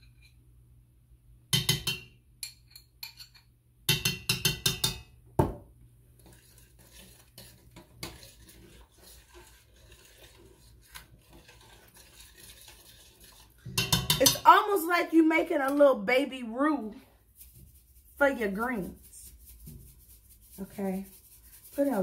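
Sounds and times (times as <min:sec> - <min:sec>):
utensil clinking against pan: 0:13.7 - 0:14.5.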